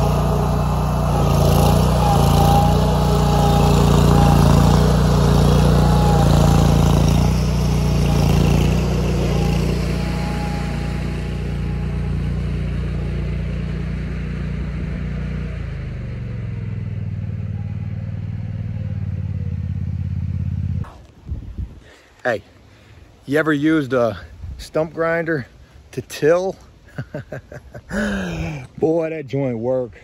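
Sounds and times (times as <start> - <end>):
stump grinder engine running: 0.0 - 20.8.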